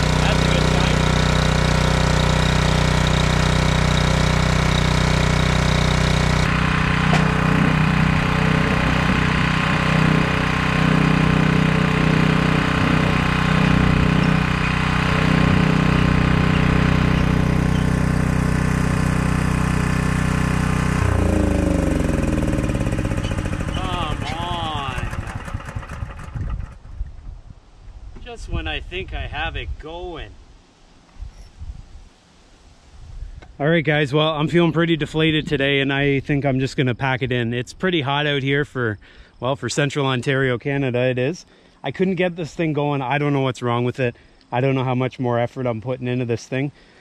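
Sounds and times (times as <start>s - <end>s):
small generator engine running: 0.0s - 27.1s.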